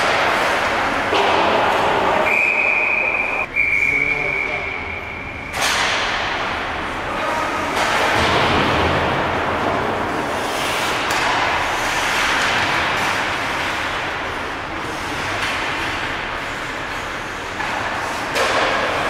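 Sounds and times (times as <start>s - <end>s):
skate blades scraping ice: 10.0s - 19.0s.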